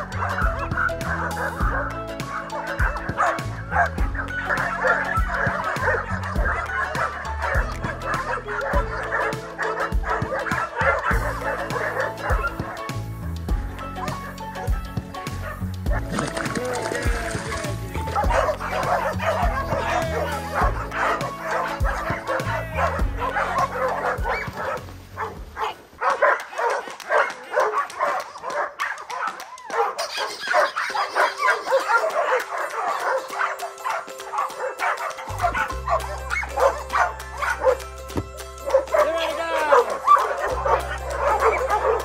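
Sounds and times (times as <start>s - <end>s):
background music: 0.0s - 42.0s
dogs barking and yipping: 0.0s - 42.0s.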